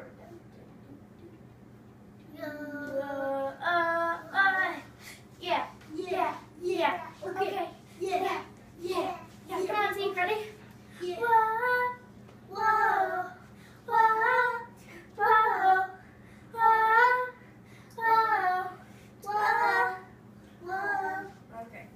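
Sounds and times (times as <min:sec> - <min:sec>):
child singing: 0:02.3 - 0:10.4, 0:11.0 - 0:16.0, 0:18.0 - 0:21.4.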